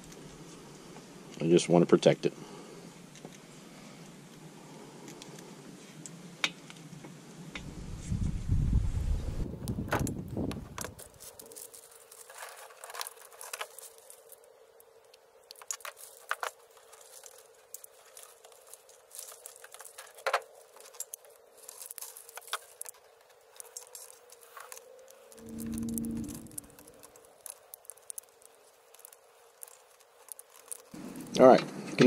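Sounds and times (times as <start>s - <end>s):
plastic clicks and crinkles: 9.6s - 31.4s.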